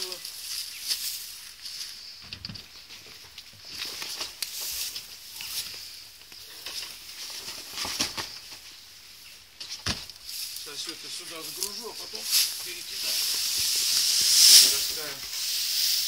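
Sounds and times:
tarpaulin and straw rustling: 0.0s - 16.0s.

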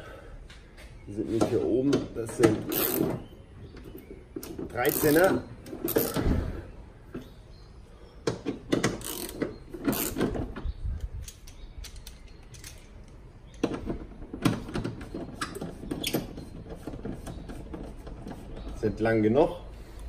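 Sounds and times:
ratchet pawl clicking: 9.0s - 10.2s.

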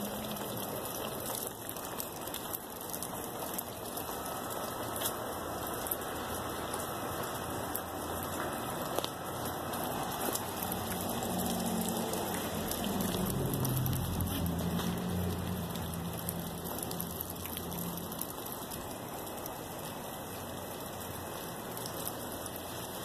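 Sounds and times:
wet snow falling: 0.0s - 23.0s.

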